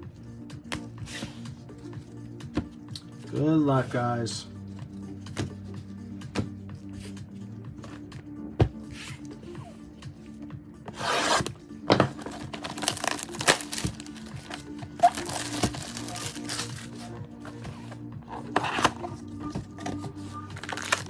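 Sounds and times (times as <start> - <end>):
faint background music: 0.0 - 21.0
plastic wrap crinkling and tearing: 12.2 - 17.0, 20.6 - 21.0.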